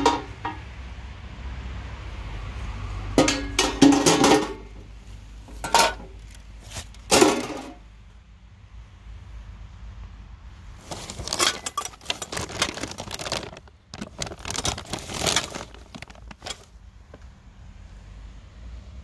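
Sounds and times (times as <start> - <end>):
plastic bag crinkling: 10.8 - 16.8.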